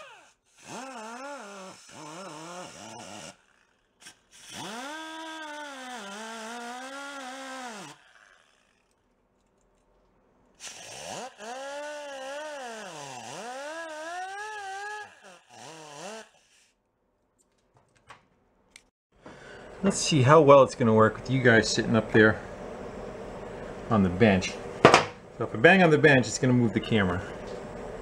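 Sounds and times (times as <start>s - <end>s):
cordless power tool whirring: 0.0s - 9.0s, 10.6s - 16.8s.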